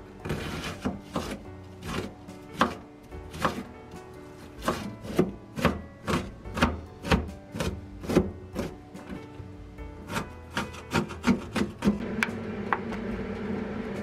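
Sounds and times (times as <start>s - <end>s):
knife chopping on cutting board: 0.2s - 3.7s, 4.5s - 8.7s, 10.1s - 12.0s.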